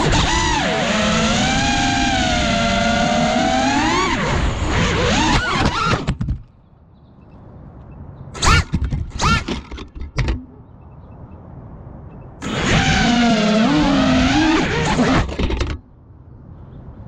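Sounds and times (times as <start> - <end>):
drone motors whining: 0.0 - 6.2, 8.4 - 10.5, 12.4 - 15.8
drone crashing on asphalt: 0.0 - 6.5, 8.4 - 10.6, 12.4 - 15.9.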